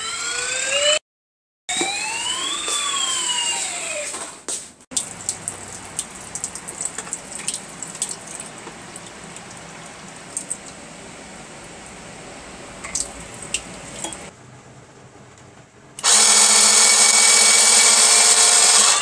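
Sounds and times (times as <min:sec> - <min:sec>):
toy siren wail: 0:01.7 - 0:04.1
water splashing through funnel: 0:04.9 - 0:10.8.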